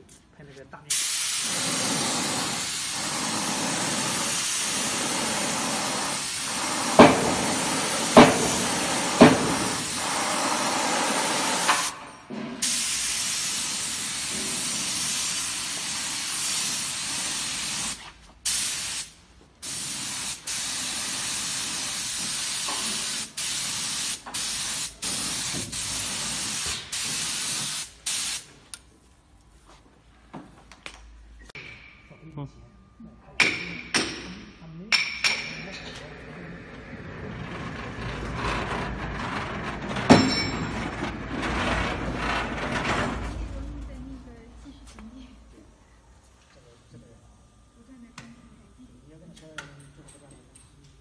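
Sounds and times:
spray gun hissing: 0.9s - 12.0s, 12.6s - 28.5s.

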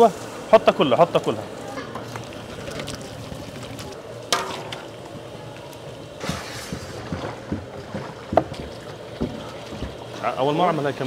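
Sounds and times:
metal pot clank: 4.3s - 4.8s.

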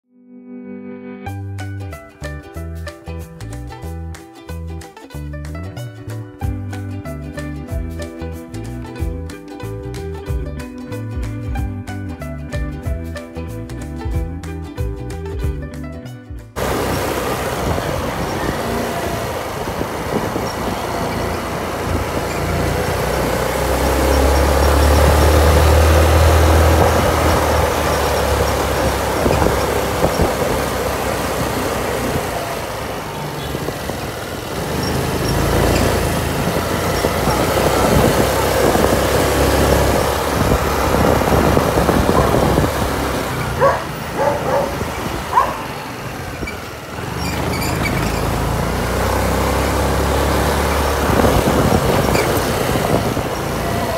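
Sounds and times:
scooter engine and road noise: 16.6s - 53.9s
wind buffeting microphone: 16.6s - 53.9s.

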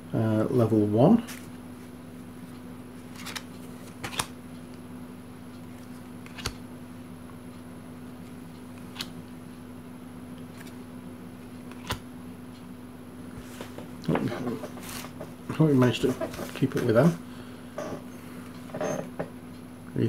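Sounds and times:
cards being handled: 3.0s - 4.4s, 5.6s - 6.6s, 8.7s - 9.2s, 10.4s - 10.8s, 11.4s - 12.0s, 13.3s - 16.9s
cards clicking together: 3.1s - 4.3s, 6.2s - 6.6s, 8.8s - 9.1s, 11.7s - 12.0s.

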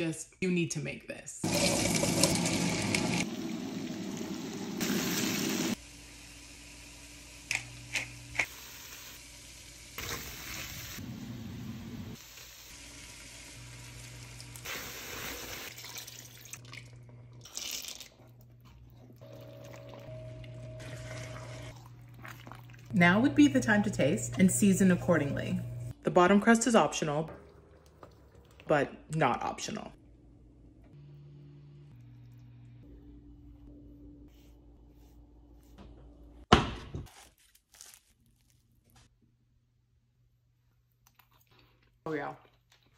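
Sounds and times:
onion sizzling in a hot pot: 1.4s - 16.2s.

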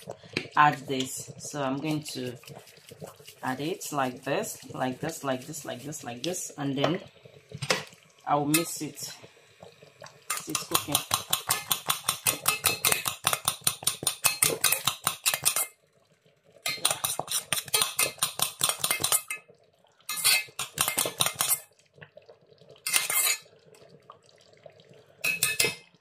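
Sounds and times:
metal spoon scraping pot: 10.3s - 15.7s, 16.7s - 19.4s, 20.1s - 21.6s, 22.9s - 23.4s, 25.2s - 25.8s.

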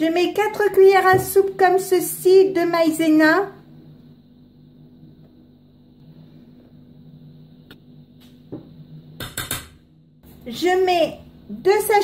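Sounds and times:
steady low hum: 0.0s - 12.0s
metal spoon knocking steel bowl: 9.2s - 9.8s.

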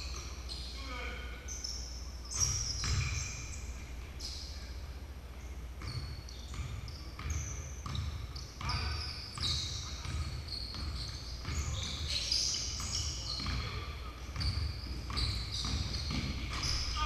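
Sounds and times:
sneaker squeaks: 0.0s - 4.8s, 5.4s - 17.0s
basketball bouncing: 2.4s - 3.2s, 5.8s - 12.1s, 12.8s - 13.8s, 14.4s - 16.9s.

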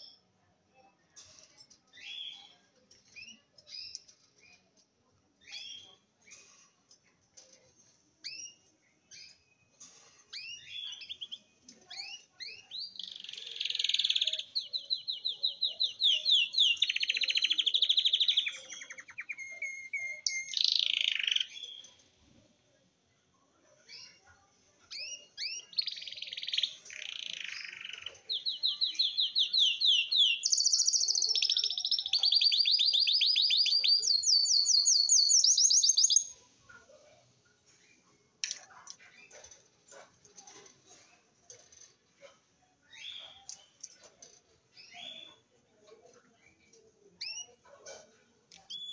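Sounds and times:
finch singing chirps and trills: 10.4s - 21.9s, 25.0s - 36.4s.

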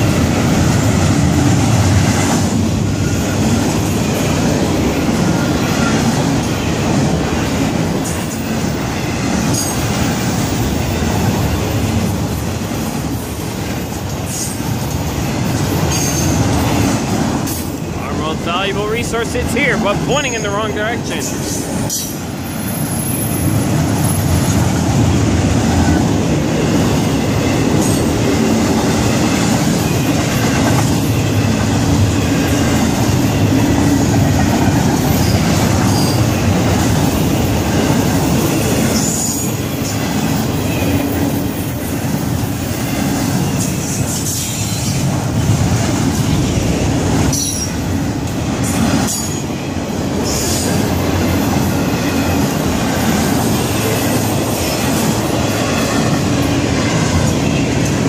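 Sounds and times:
train wheels rumbling on rail: 0.0s - 58.0s
high wheel squeals: 21.9s - 24.6s.

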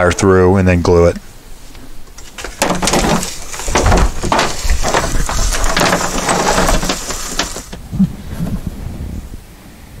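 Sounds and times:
wire scraping over dry leaves: 1.9s - 7.8s
low thuds: 1.9s - 8.1s.

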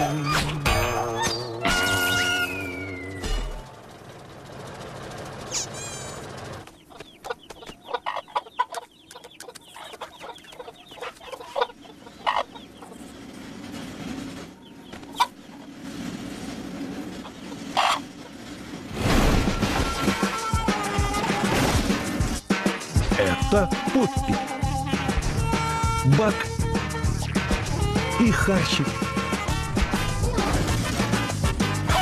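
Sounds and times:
cartoon chicken clucking: 6.8s - 12.6s.

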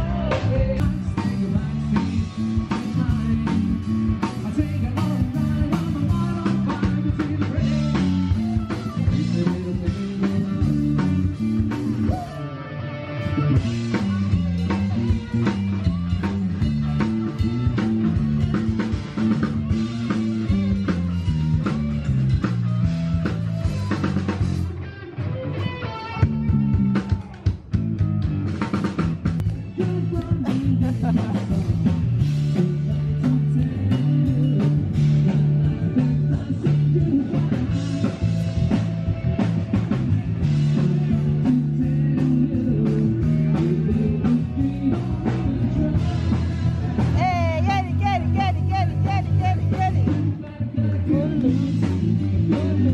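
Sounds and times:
drum kit: 0.0s - 12.6s, 13.2s - 52.9s
person singing: 0.0s - 21.6s, 29.4s - 52.9s
electric guitar: 0.0s - 52.9s
live rock band playing: 0.0s - 52.9s.

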